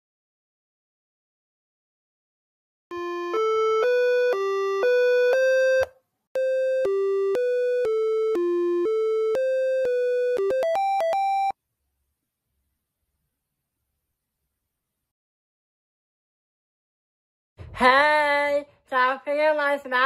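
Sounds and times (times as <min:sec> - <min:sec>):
synthesized jingle melody: 0:02.9 - 0:11.6.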